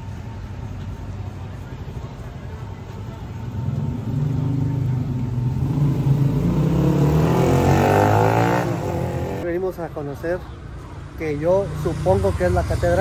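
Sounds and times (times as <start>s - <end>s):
vehicle engine accelerating: 3.4s - 9.4s.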